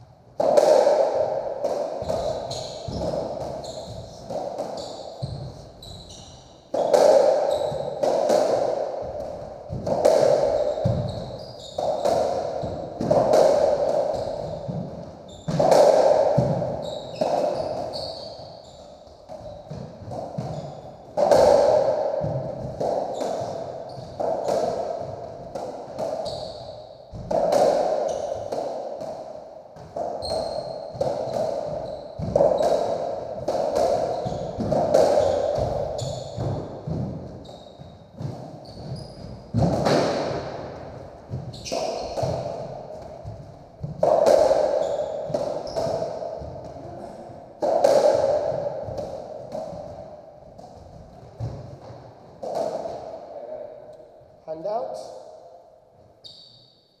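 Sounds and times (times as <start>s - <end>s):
ball hitting rackets and walls: 0.0s - 54.4s
shoes squeaking on wooden floor: 2.0s - 6.8s, 7.5s - 8.0s, 10.5s - 13.1s, 14.1s - 15.6s, 16.4s - 21.2s, 26.1s - 26.9s, 30.2s - 33.4s, 34.0s - 39.8s, 41.2s - 43.9s, 44.6s - 47.3s, 56.2s - 56.8s.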